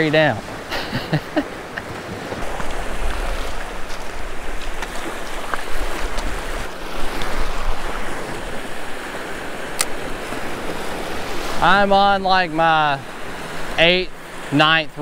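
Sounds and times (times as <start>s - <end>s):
small waves washing over shallows: 0.0s - 15.0s
wind buffeting microphone: 1.3s - 14.5s.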